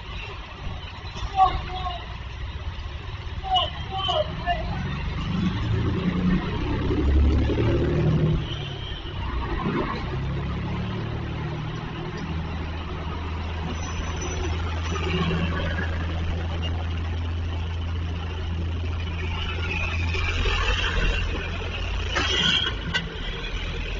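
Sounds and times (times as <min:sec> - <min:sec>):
traffic passing: 0:00.0 - 0:23.9
engine idling: 0:11.3 - 0:22.9.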